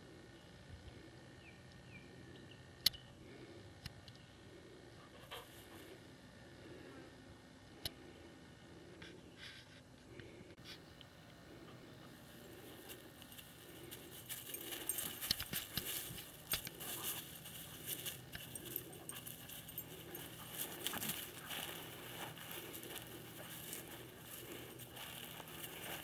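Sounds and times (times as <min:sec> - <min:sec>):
collar tag jingling: 0:12.0 - 0:26.0.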